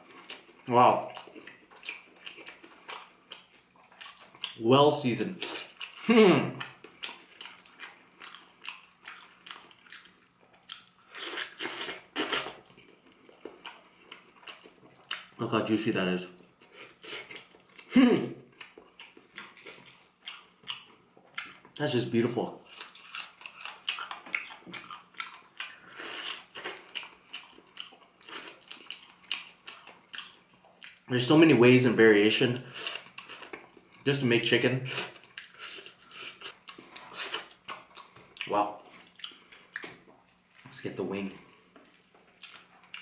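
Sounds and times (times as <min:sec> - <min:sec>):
person biting and chewing: 0:06.6 - 0:15.3, 0:22.6 - 0:31.0, 0:34.9 - 0:43.0.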